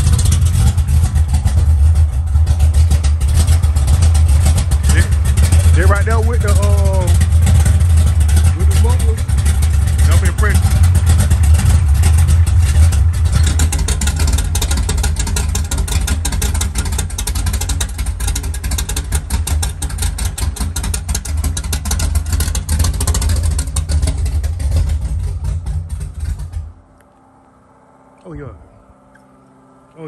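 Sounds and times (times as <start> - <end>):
car engine idling loudly: 0.0 - 27.0.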